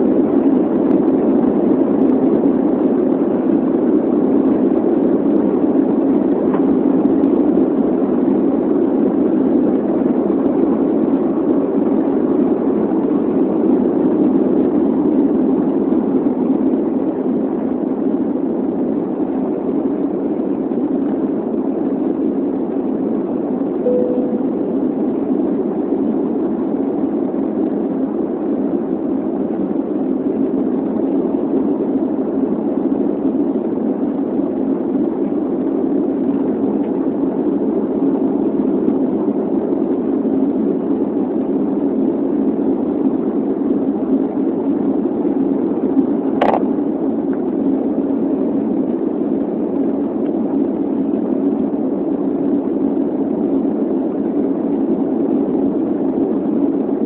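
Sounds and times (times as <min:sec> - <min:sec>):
airplane cabin jet engine roar: 0:00.0 - 0:57.0
short click: 0:46.4 - 0:46.6.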